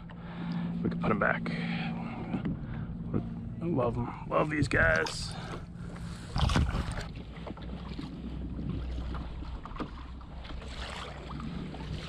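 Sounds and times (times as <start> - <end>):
water lapping against kayak hull: 0.0 - 12.0
wind rumble on microphone: 2.3 - 12.0.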